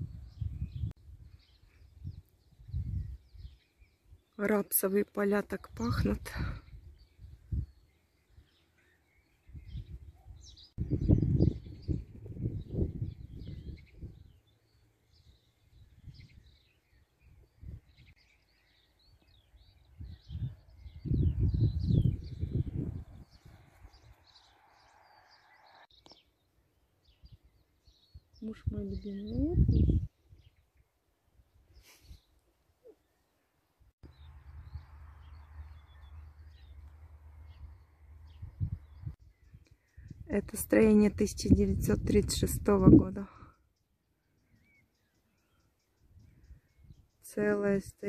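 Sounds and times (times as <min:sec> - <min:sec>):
wind buffeting microphone: 0:00.0 - 0:03.6, 0:05.7 - 0:07.9, 0:09.4 - 0:14.4, 0:15.6 - 0:18.2, 0:19.4 - 0:24.5, 0:27.2 - 0:30.5, 0:37.5 - 0:43.5
small birds singing and chirping: 0:00.0 - 0:48.0.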